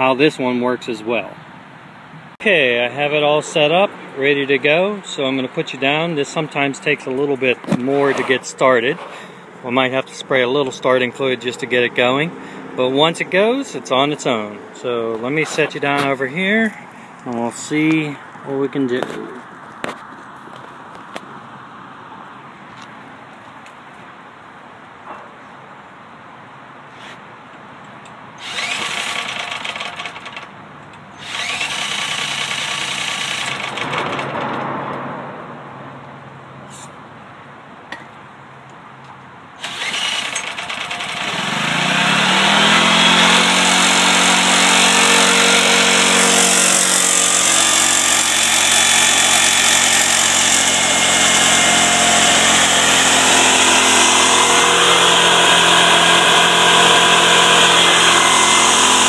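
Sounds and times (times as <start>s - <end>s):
generator engine running: 28.4s - 30.4s, 31.2s - 34.3s, 39.6s - 59.0s
generator engine cranking: 28.4s - 30.5s, 31.2s - 34.7s, 39.6s - 59.0s.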